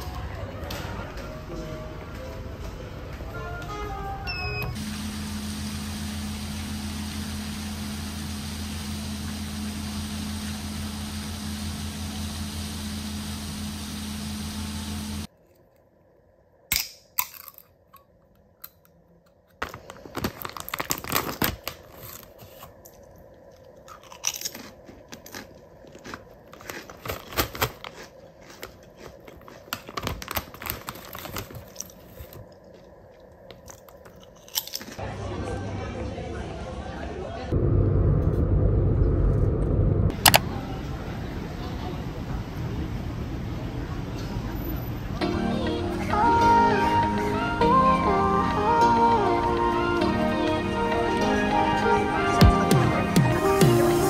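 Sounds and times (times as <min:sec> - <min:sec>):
low hum with hiss: 0:00.0 - 0:54.0
chip bag crinkling and tearing: 0:19.6 - 0:32.7, 0:33.5 - 0:35.0.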